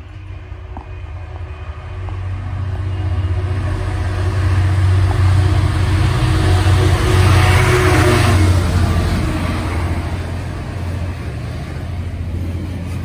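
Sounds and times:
diesel locomotive engine drone: 0.0s - 13.0s.

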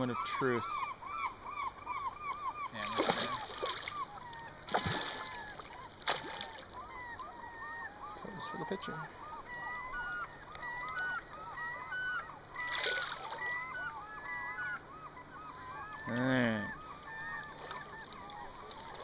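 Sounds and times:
flock of birds calling: 0.0s - 19.0s
splash: 2.8s - 4.0s, 4.7s - 6.6s, 12.7s - 13.4s.

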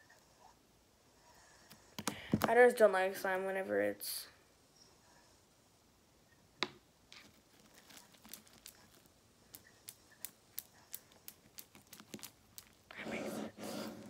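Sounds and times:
slime clicking and popping: 8.1s - 12.8s.

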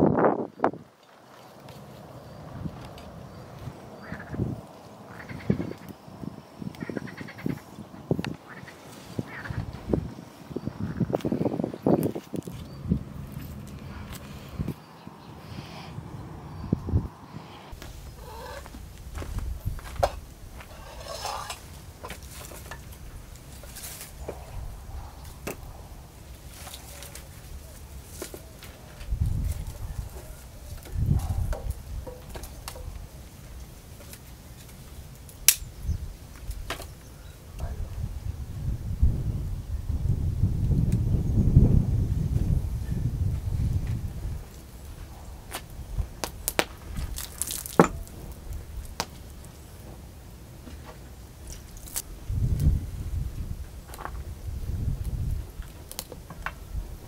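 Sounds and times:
firewood knocking and rustling: 17.8s - 35.6s, 43.8s - 52.0s
burning logs popping: 17.8s - 37.0s, 43.8s - 57.0s
log set down on metal: 19.8s - 23.0s, 47.2s - 48.3s.

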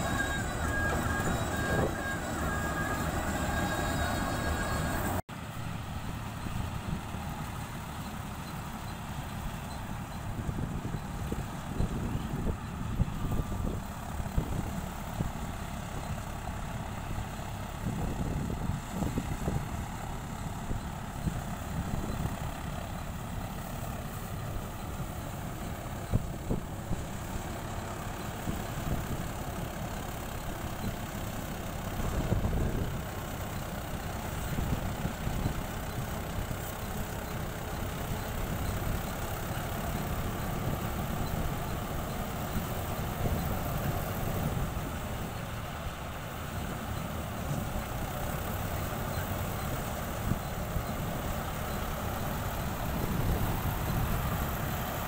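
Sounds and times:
combine harvester engine drone: 0.0s - 55.0s.

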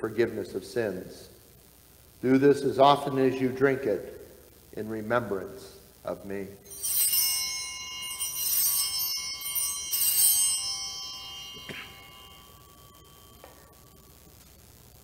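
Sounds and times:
altar bells ringing: 6.6s - 14.4s.

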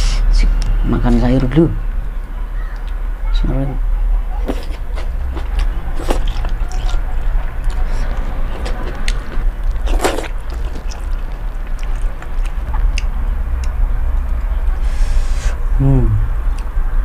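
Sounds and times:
steady low hum: 0.0s - 17.0s
wet chewing: 4.3s - 14.6s
person slurping noodles: 9.8s - 11.1s.

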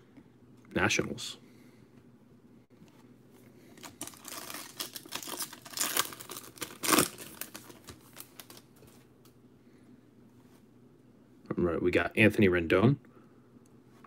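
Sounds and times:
card pack wrapper crinkling and tearing: 3.8s - 8.9s.

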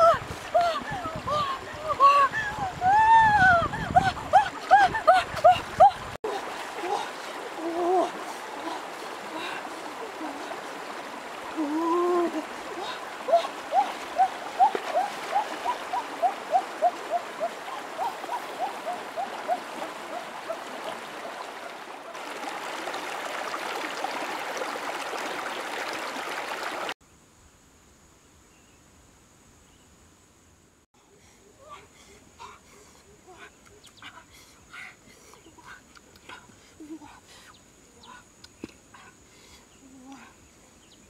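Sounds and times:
stream splashing over rocks: 4.2s - 27.0s.

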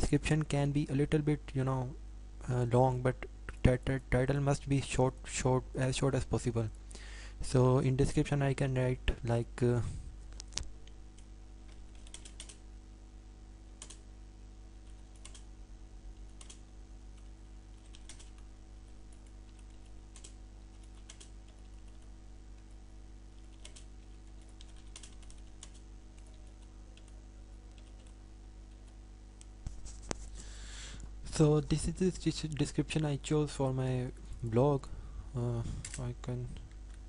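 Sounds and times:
faint steady hum: 0.0s - 37.0s
keyboard typing: 11.7s - 12.6s, 14.8s - 15.5s, 16.2s - 16.6s, 17.2s - 18.5s, 19.1s - 22.7s, 23.4s - 29.0s.

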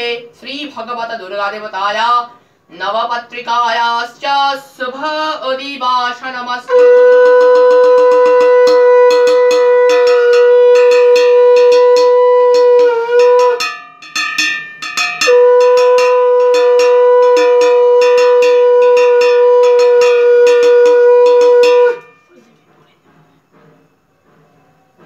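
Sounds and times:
conch shell blasts: 6.7s - 22.4s
hand bell ringing rapidly: 6.8s - 22.3s.

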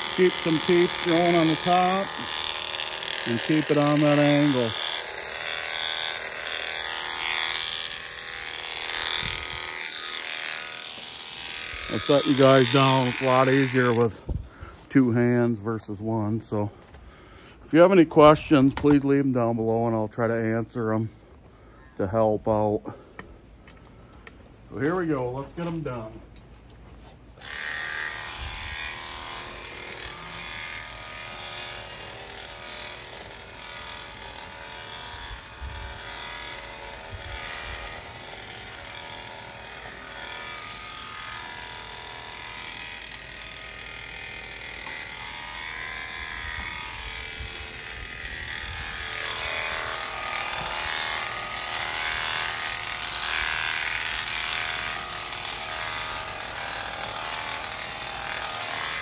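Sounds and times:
electric shearing clippers running: 0.0s - 19.9s, 23.0s - 26.2s, 27.3s - 59.0s.

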